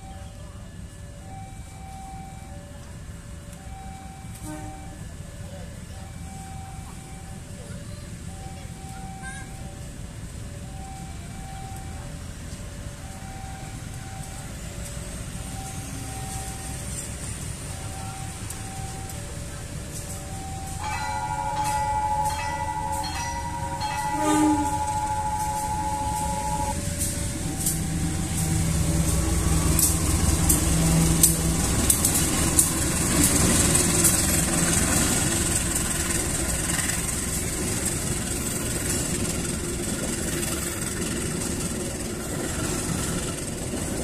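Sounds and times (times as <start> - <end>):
locomotive engine rumbling: 0.0 - 44.0
locomotive horn: 4.3 - 5.1, 20.3 - 32.4
train wheels clattering: 19.8 - 44.0.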